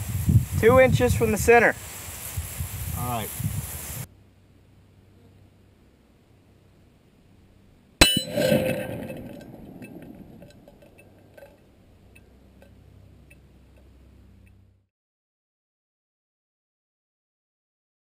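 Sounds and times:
bullet striking steel plate: 8.0s - 11.6s
chains clinking: 8.0s - 11.6s.

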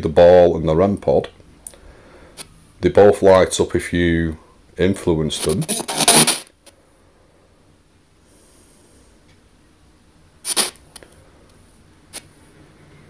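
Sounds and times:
faint radio hiss: 0.0s - 13.0s
short loud radio burst: 5.6s - 6.5s.

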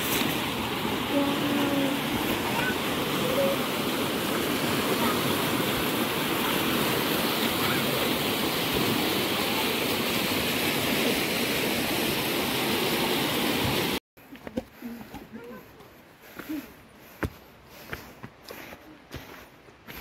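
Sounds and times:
river rushing over rocks: 0.0s - 14.0s.

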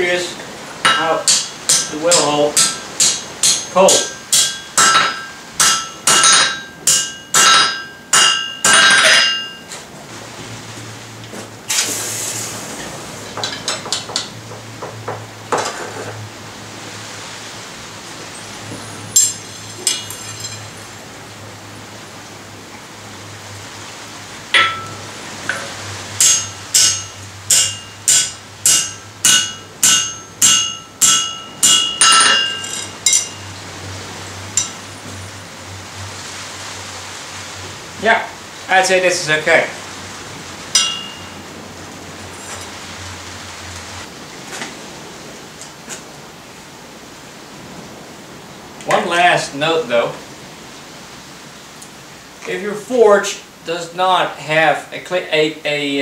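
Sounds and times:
hammer ringing on steel: 0.8s - 9.7s, 24.6s - 33.5s, 34.5s - 34.8s, 40.7s - 41.4s.

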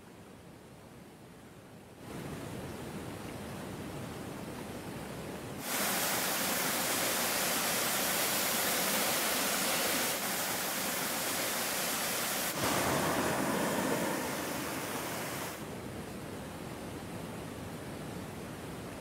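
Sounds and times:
waterfall rushing over rock: 5.6s - 15.8s.

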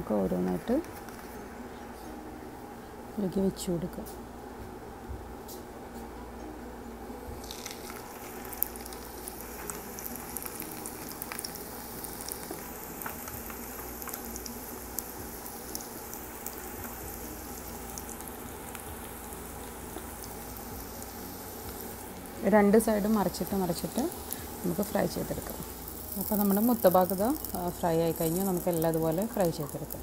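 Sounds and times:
oil sizzling in a frying pan: 7.4s - 30.0s
spitting oil crackles: 7.4s - 30.0s.

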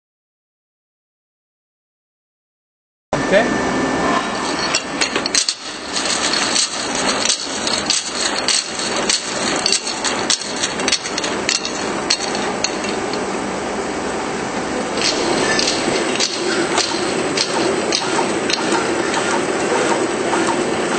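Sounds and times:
machine mechanical clatter: 4.3s - 13.4s, 14.9s - 20.9s
sharp machine clacks: 4.4s - 13.2s, 15.0s - 20.9s.

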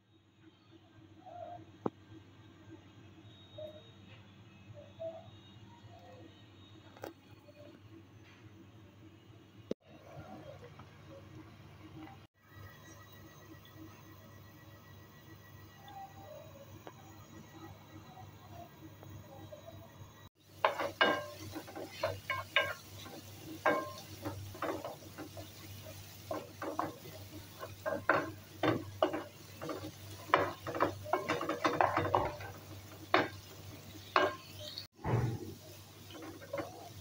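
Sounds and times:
faint sizzle: 0.0s - 37.0s
wooden spoon scraping a pan: 20.5s - 37.0s.

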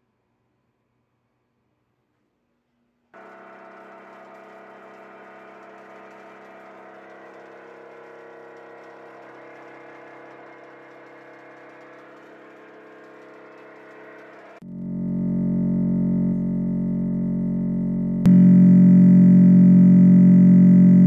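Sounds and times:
vibration resonator droning: 3.2s - 21.0s.

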